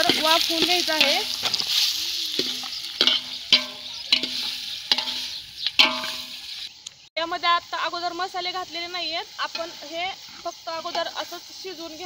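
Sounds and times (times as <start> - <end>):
chicken sizzling in hot oil: 0.0 - 6.8, 7.4 - 12.0
metal ladle knocking on pot: 2.4 - 6.3.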